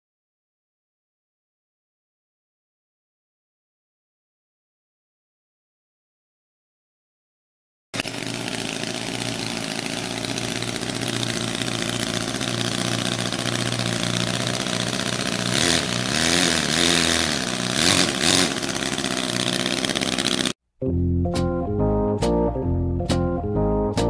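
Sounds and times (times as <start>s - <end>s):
small petrol engine running: 8.0s - 20.6s.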